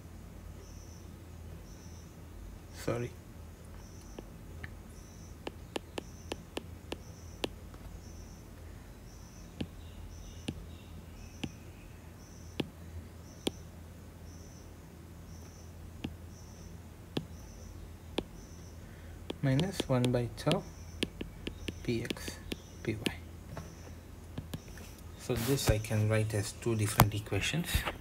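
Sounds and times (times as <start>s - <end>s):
steady low hum: 0.0s - 28.0s
faint high chirp: 4.9s - 19.0s
stylus tapping on glass screen: 5.4s - 7.6s, 9.6s - 9.8s, 10.4s - 10.6s, 16.0s - 16.2s, 17.2s - 17.4s, 19.3s - 23.2s, 24.4s - 24.7s.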